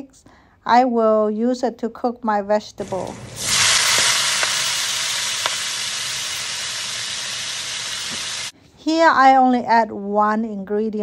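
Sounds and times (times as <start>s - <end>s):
vegetables sizzling in a wok: 2.8s - 8.5s
small pops: 5.3s - 5.7s.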